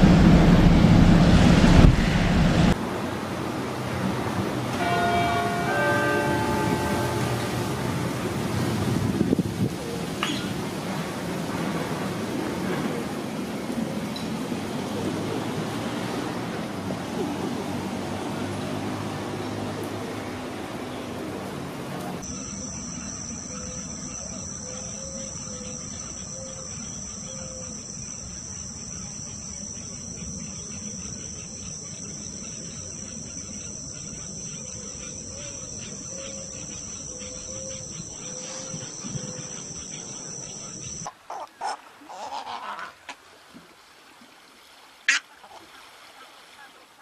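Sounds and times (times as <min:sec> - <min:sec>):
soft low note: 0:00.0 - 0:02.8
insects droning: 0:03.5 - 0:14.0, 0:22.2 - 0:41.1.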